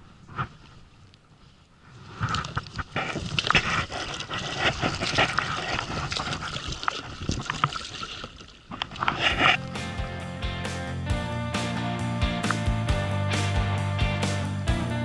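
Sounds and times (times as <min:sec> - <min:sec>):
water splashing and trickling: 0:02.2 - 0:09.6.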